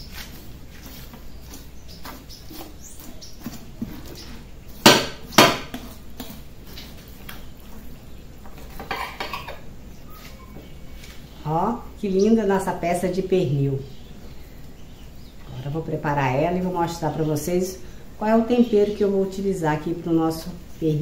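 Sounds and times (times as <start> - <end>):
knife slicing and scraping meat: 0.0 - 7.3
loud sharp knocks: 4.8 - 5.8.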